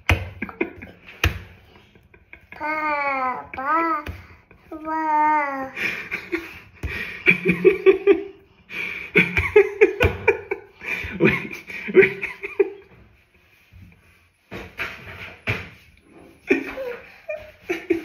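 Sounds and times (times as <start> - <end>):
man laughing heartily: 5.8 - 12.8, 16.5 - 18.0.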